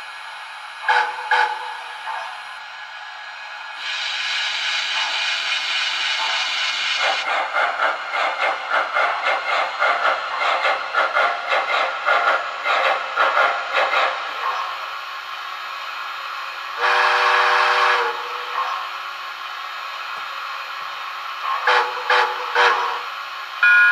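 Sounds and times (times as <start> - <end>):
steam locomotive chuffs: 0.0 - 23.9
steam hiss: 3.8 - 23.6
steam whistle: 16.8 - 18.5, 21.7 - 23.9.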